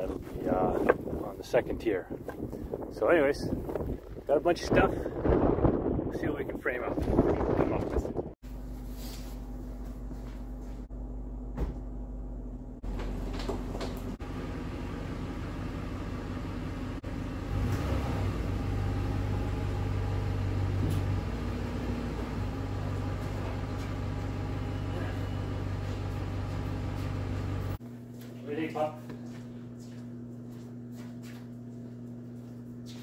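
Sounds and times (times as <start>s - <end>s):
low mechanical engine hum: 8.5s - 28.2s.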